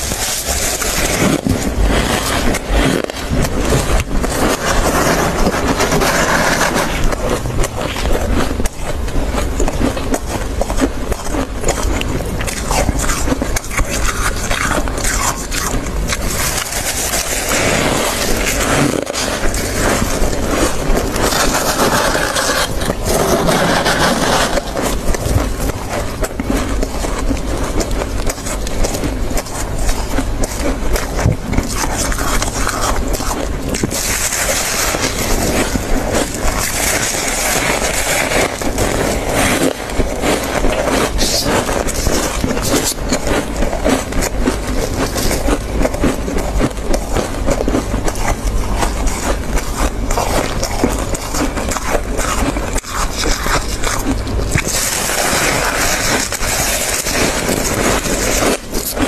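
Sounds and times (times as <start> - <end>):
gloved hands scraping frost: 0.0 - 8.1, 16.1 - 25.8, 54.6 - 59.0
chewing frost: 0.0 - 59.0.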